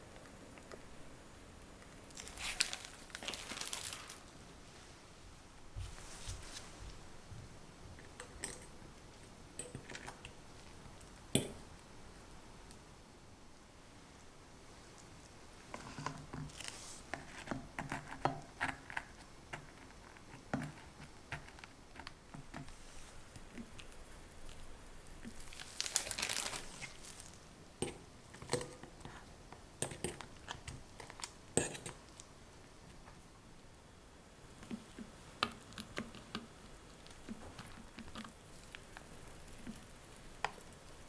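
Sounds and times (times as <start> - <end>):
plastic piping bag crinkling: 1.9 - 4.4, 22.7 - 27.5, 34.5 - 41.0
spoon tapping chocolate cup: 11.4 - 11.6.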